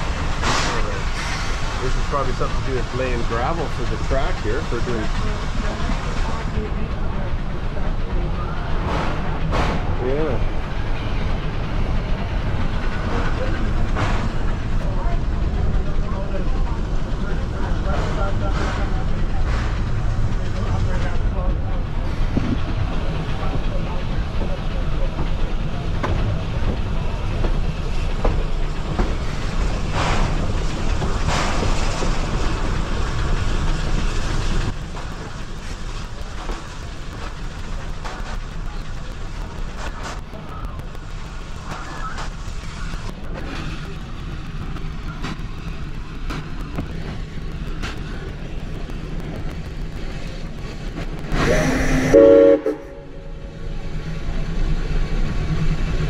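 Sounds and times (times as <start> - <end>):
steam hissing bursts: 0.0 - 6.4, 50.0 - 56.0
rush of steam: 0.0 - 56.0
train running gear rumble: 0.0 - 56.0
wheels clicking on rails: 0.0 - 56.0
steam whistle blast: 51.4 - 53.2.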